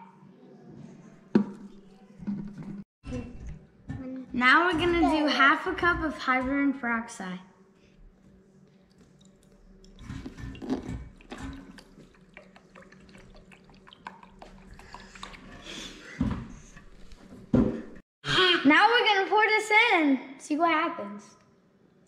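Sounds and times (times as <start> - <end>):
liquid trickling into metal cup: 9.0 - 15.7.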